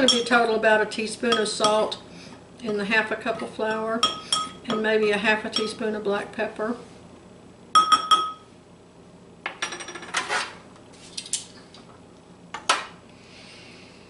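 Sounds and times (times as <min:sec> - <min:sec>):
metal spoon clinking glass bowl: 0:00.0 - 0:00.3, 0:04.0 - 0:04.8, 0:07.8 - 0:08.4.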